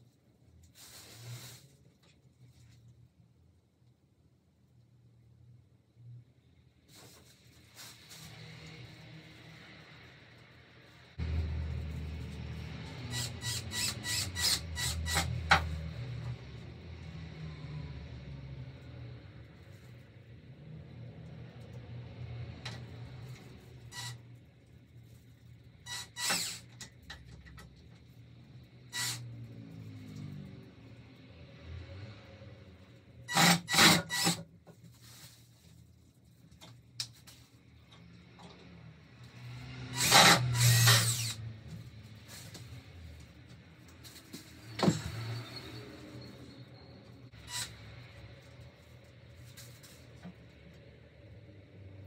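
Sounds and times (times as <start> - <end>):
cordless drill whirring: 13.0 - 15.4, 25.9 - 26.7, 29.0 - 29.2, 33.3 - 34.4, 40.0 - 41.4.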